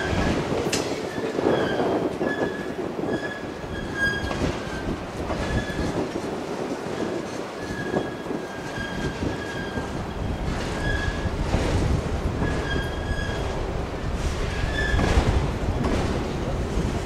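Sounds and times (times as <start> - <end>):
freight train wheels rumbling on rail: 0.0 - 17.0
high-pitched wheel squeal: 1.1 - 4.8, 7.6 - 10.1, 12.4 - 13.6.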